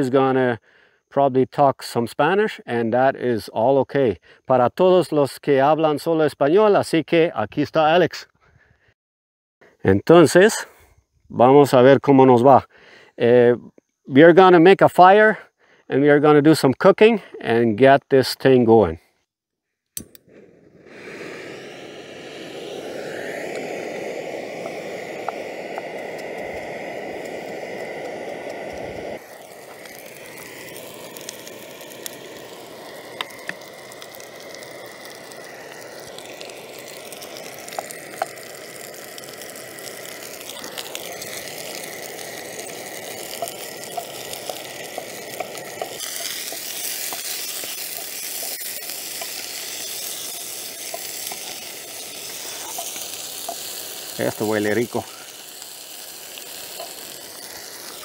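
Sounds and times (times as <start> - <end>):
vegetables sizzling in a frying pan: 21.2 - 58.0.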